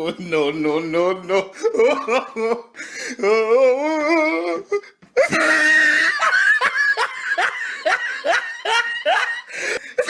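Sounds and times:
girl laughing hard: 5.2s - 10.0s.

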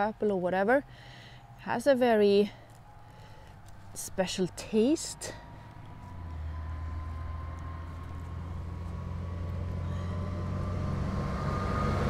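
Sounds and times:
vehicle engine rumble: 2.4s - 12.0s.

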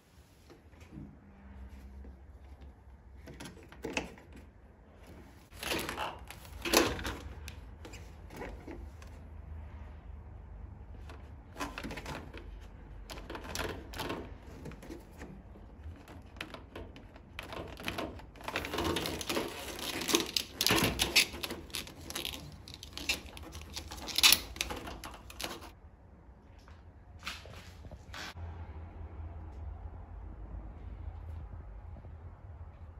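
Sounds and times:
plastic hose clicking and scraping: 2.0s - 9.3s, 10.9s - 25.8s.

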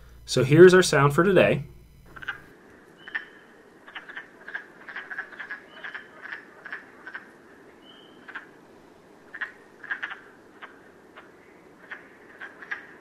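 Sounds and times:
faint background hiss: 0.0s - 13.0s
frogs clicking calls: 2.0s - 13.0s.

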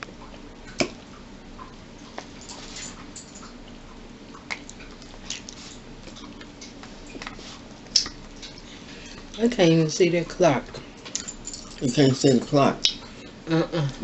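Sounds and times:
chewing: 0.2s - 9.4s.

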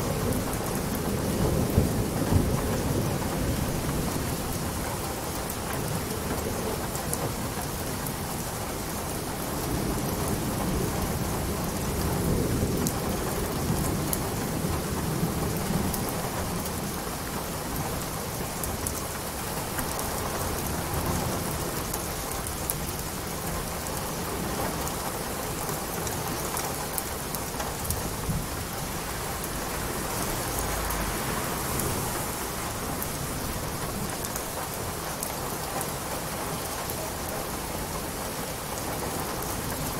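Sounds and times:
steady rain: 0.0s - 39.9s
rumble of thunder: 0.1s - 4.8s.

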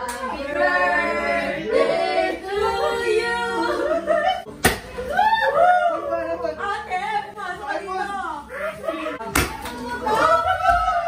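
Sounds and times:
group of voices singing: 0.0s - 4.5s.

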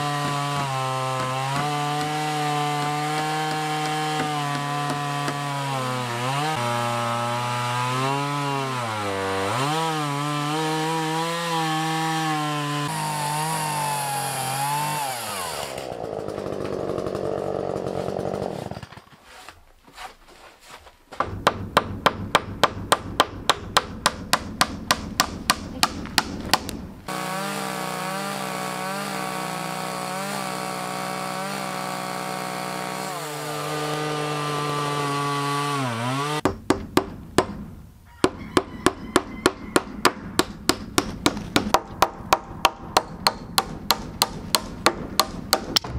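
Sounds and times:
chainsaw cutting wood: 0.0s - 19.6s, 21.2s - 36.8s, 38.3s - 45.9s
regular knocks: 21.1s - 27.1s, 36.4s - 45.9s.

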